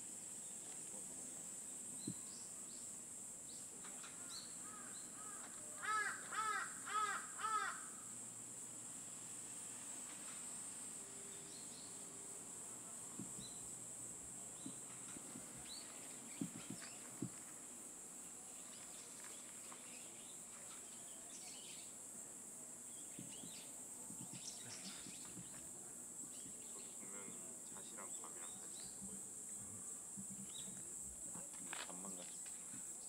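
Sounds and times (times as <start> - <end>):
high-pitched insect drone: 8.8 - 17.4.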